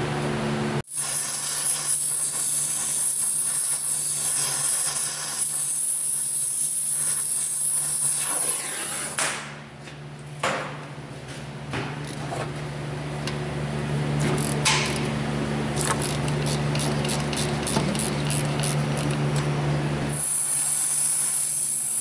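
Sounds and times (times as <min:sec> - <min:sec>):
torch flame hissing: 0:00.9 - 0:09.2, 0:20.1 - 0:22.0.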